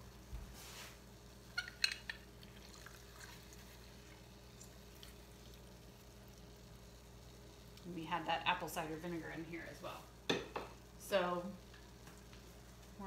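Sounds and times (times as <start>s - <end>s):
juice dripping into sauce: 1.5s - 7.9s.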